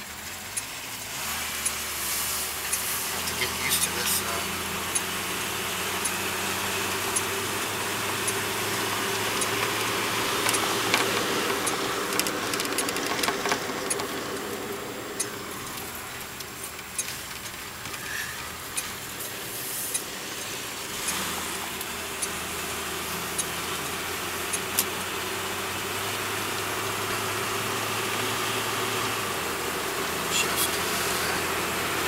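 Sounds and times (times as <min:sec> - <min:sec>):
car engine running: 0:00.0 - 0:32.0
road and tyre noise: 0:00.0 - 0:32.0
light engine click: 0:00.5 - 0:00.7, 0:01.6 - 0:01.8, 0:04.9 - 0:05.1, 0:08.2 - 0:08.5, 0:09.2 - 0:14.5, 0:15.2 - 0:19.3
rattles: 0:08.2 - 0:20.8.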